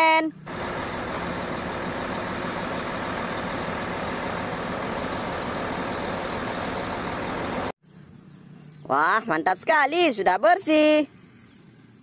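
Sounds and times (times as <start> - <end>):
diesel truck engine running: 0.4 - 7.8.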